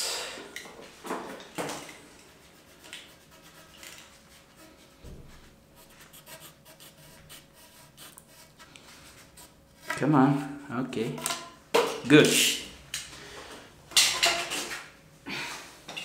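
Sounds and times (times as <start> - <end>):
knife scraping tubing: 2.6 - 5.0, 5.8 - 10.1.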